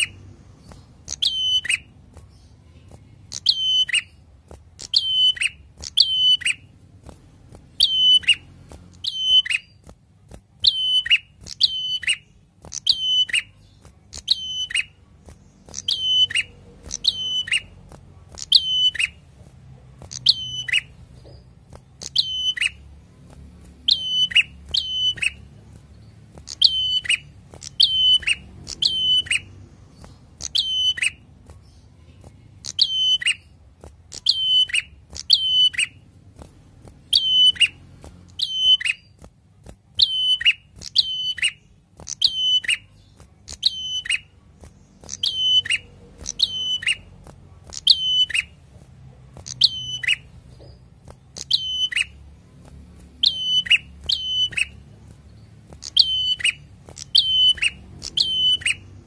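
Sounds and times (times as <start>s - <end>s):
bird calling sharp notes: 1.0s - 1.9s, 3.3s - 4.2s, 4.8s - 6.7s, 7.8s - 9.8s, 15.6s - 17.8s, 37.1s - 37.8s, 45.0s - 48.5s, 53.2s - 54.8s, 55.8s - 58.9s.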